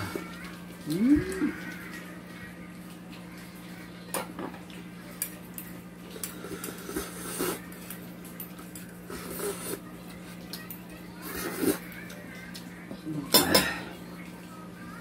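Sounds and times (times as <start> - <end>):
metal spoon clinking on dishes: 13.3 - 13.9.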